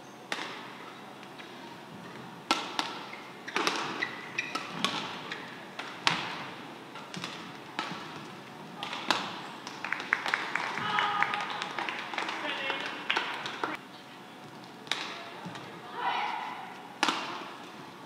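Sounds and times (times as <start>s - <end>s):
shoes squeaking on court: 0.0s - 9.8s
racket hitting shuttlecock: 0.3s - 1.6s, 2.4s - 11.7s, 14.8s - 17.8s.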